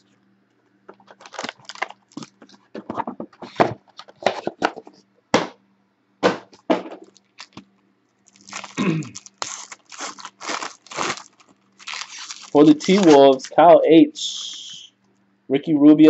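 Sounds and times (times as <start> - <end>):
packaging crackling and crinkling: 0.9 - 2.7, 7.0 - 7.6, 8.2 - 13.7.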